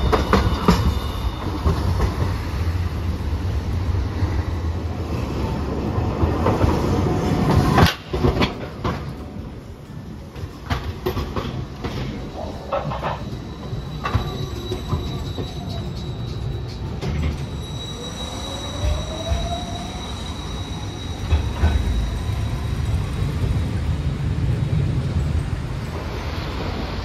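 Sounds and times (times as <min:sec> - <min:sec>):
high wheel squeal: 0:00.0 - 0:03.2, 0:12.3 - 0:23.6
tram low rumble: 0:00.0 - 0:27.0
wheels clacking on rails: 0:00.0 - 0:27.0.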